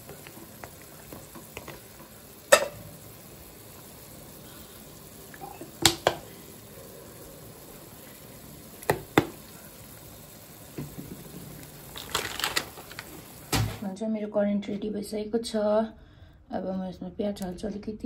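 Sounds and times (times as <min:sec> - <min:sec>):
broth bubbling: 0:00.0 - 0:13.8.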